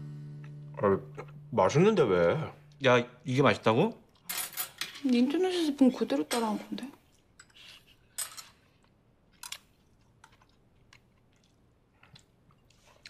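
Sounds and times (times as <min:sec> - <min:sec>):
chewing: 0:08.7 - 0:13.0.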